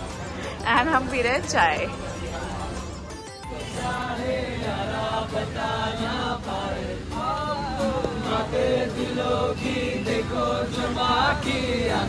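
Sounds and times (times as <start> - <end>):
acoustic guitars: 0.0 - 12.0
people singing together: 3.4 - 12.0.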